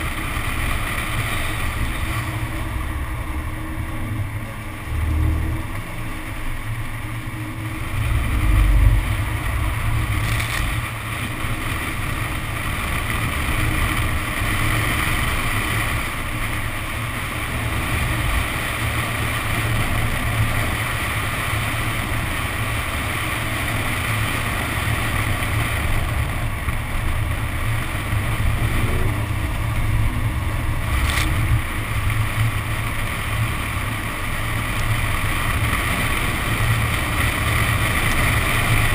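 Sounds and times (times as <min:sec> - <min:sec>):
car engine running: 0:00.0 - 0:38.9.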